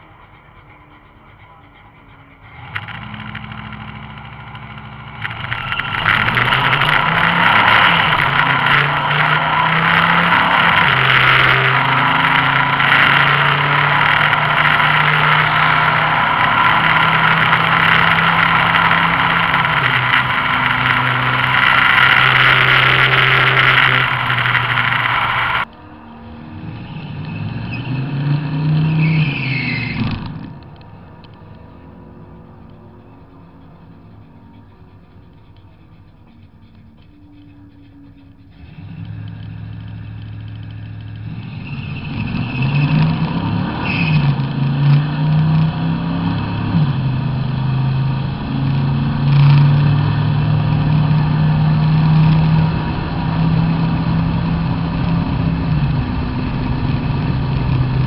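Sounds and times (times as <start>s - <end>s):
engine popping and crackling: 0.0s - 25.8s, 32.4s - 58.0s
pickup engine at full throttle: 2.4s - 29.0s, 38.5s - 58.0s.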